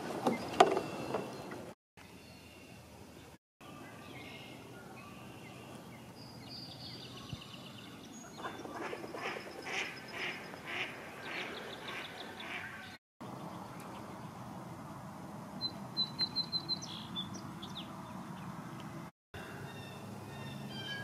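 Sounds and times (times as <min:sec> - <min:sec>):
ducks quacking: 0:08.4 - 0:13.0.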